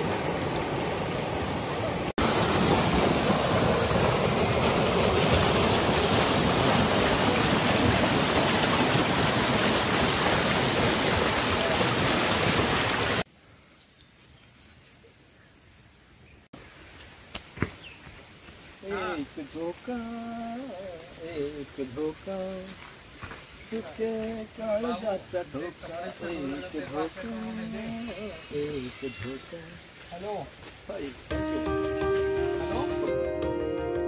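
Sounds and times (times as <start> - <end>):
river water rushing over rocks: 0.0 - 13.2.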